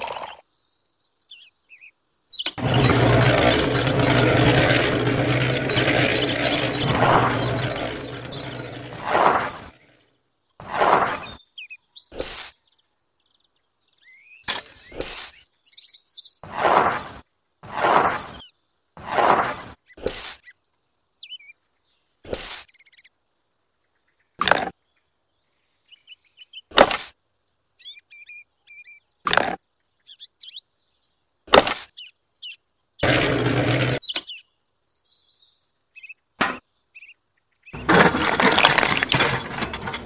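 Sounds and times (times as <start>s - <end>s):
faint birds chirping: 0.0s - 40.0s
small shovel scraping sand: 2.5s - 10.0s, 10.6s - 11.4s, 12.1s - 12.5s, 14.6s - 15.4s, 16.4s - 18.4s, 19.0s - 20.4s, 22.3s - 22.7s, 33.0s - 34.1s, 37.8s - 40.0s
low hum: 2.6s - 9.8s.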